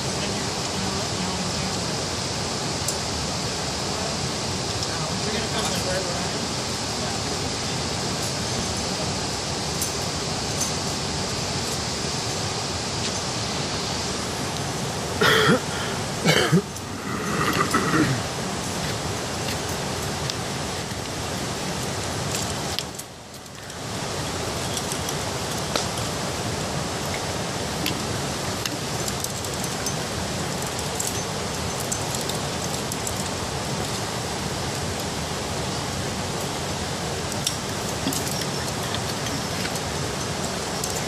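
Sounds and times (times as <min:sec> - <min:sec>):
steady rushing hiss: 0:00.0 - 0:41.0
metal climbing gear clinking: 0:09.7 - 0:11.0, 0:18.6 - 0:26.3, 0:26.9 - 0:36.6, 0:37.2 - 0:41.0.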